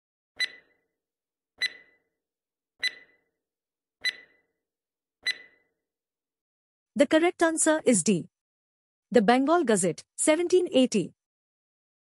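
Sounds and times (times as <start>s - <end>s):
timer ticking with brief ring: 0.4s - 0.8s, 1.6s - 2.0s, 2.8s - 3.3s, 4.0s - 4.4s, 5.2s - 5.6s.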